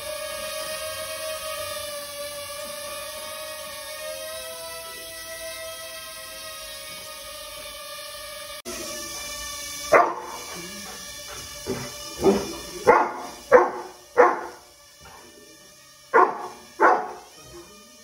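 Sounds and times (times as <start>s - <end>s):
dog barking sharply: 10.0s - 10.4s, 11.7s - 14.6s, 16.2s - 17.3s.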